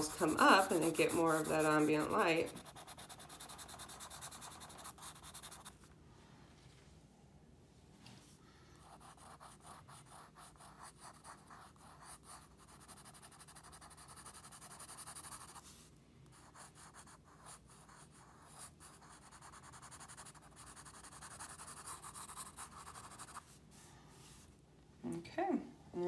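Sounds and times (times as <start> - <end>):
pencil shading on paper: 0.0 - 5.7, 8.8 - 23.6.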